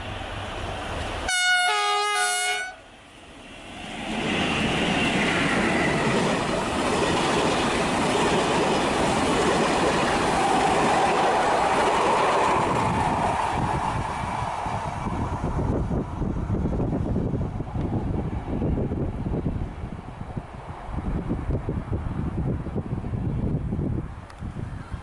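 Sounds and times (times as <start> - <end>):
two-note train horn: 1.3 - 2.8
train wheels rumbling on rail: 3.2 - 24.7.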